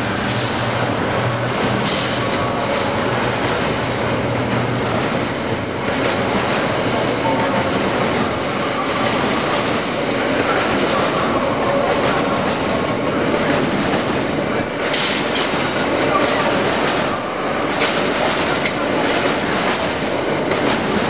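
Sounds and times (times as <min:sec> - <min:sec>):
train wheels rumbling on rails: 0:00.0 - 0:21.0
wheels clattering over track: 0:14.8 - 0:21.0.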